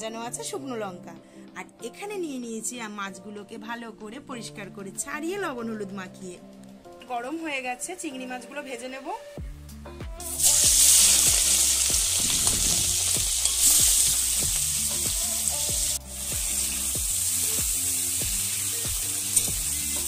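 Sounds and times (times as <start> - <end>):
prawns sizzling in hot oil: 10.2 - 20.0.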